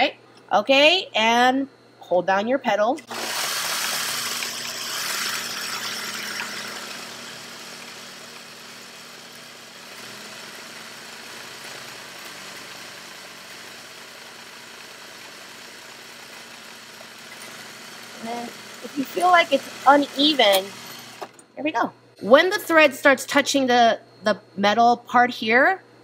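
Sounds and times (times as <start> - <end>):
sewing machine running: 3.0 - 21.4.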